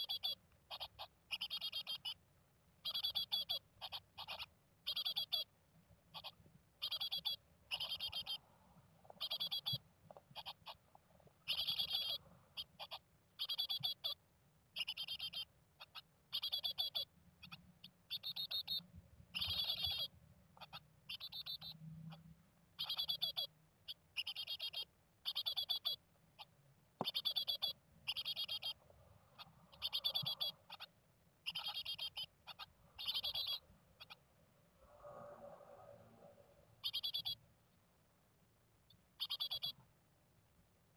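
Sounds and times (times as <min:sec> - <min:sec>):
bird calling with trilled notes: 0:00.0 - 0:02.2, 0:02.8 - 0:05.5, 0:06.1 - 0:08.4, 0:09.1 - 0:10.8, 0:11.4 - 0:14.2, 0:14.8 - 0:28.8, 0:29.4 - 0:34.2, 0:36.8 - 0:37.4, 0:39.2 - 0:39.8.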